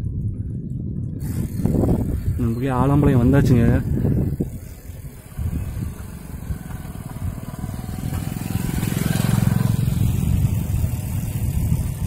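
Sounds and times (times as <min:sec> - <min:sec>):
motorcycle engine passing by: 0:04.1 - 0:12.0.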